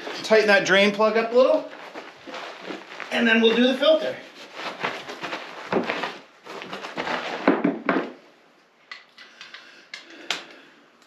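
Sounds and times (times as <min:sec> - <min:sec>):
rustling on cardboard: 0:01.7 - 0:08.2.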